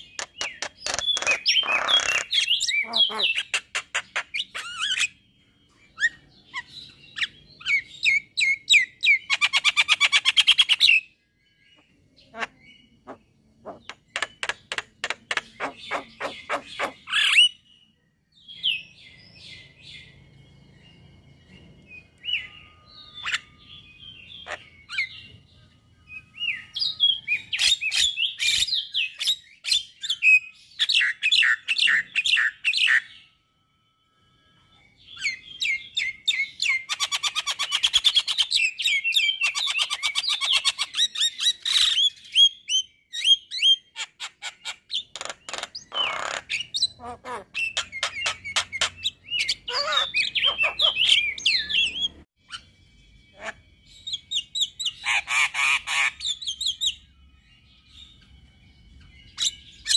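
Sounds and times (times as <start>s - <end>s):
myna chattering song: 12.2s - 17.0s.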